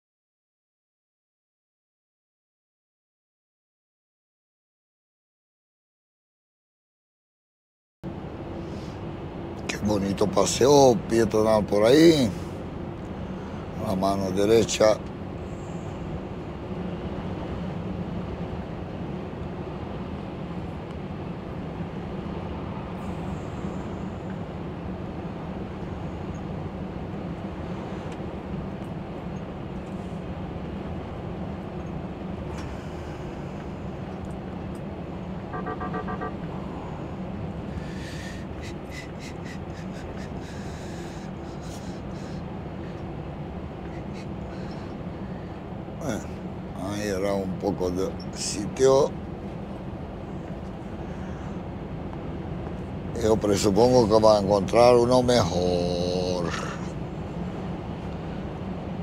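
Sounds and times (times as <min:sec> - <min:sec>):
truck engine and road drone: 0:08.0 - 0:59.0
short pulsed tone: 0:35.5 - 0:36.4.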